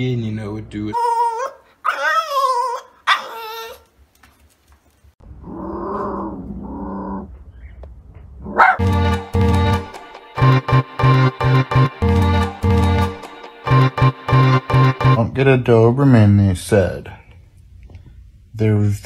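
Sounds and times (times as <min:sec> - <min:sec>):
dog whining howls: 0:01.0 - 0:03.9
dog growling: 0:05.4 - 0:07.4.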